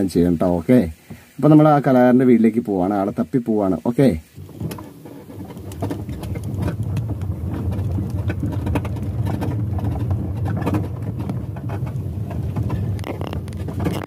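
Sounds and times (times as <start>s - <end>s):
cabin clicks and rattles: 4.4s - 14.0s.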